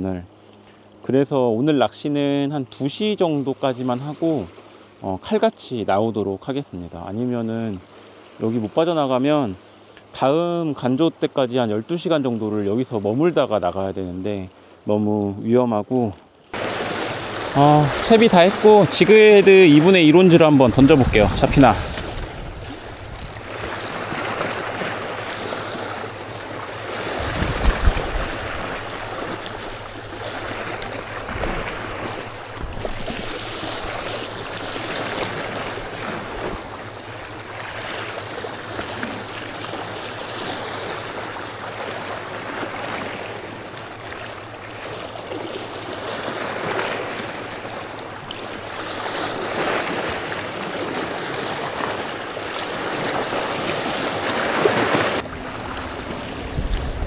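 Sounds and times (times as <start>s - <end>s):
waves splashing over rocks: 16.5s - 57.0s.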